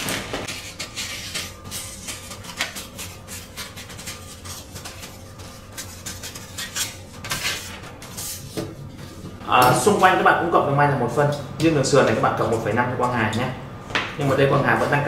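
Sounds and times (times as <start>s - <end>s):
shears snipping paper: 0.0s - 8.4s.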